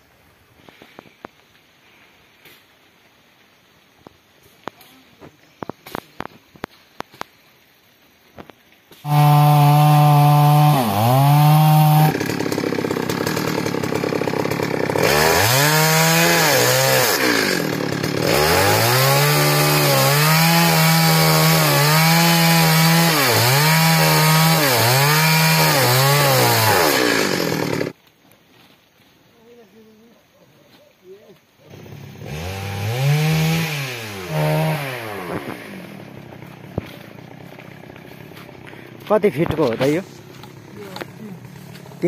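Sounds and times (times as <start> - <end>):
chainsaw cutting tree trunk: 9.0 - 28.0, 31.6 - 42.0.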